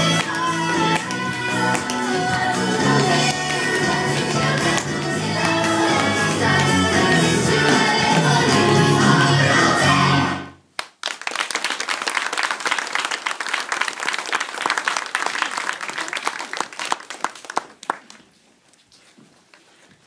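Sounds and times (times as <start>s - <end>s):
audience applauding: 10.8s - 18.2s.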